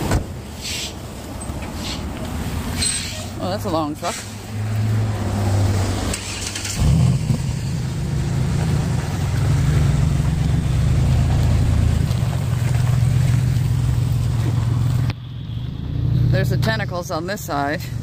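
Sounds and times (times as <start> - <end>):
truck engine idling: 6.2 - 15.4.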